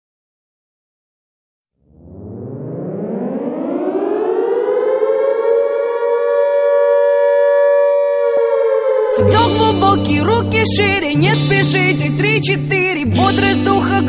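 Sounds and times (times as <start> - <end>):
siren winding up: 1.9 - 10.9.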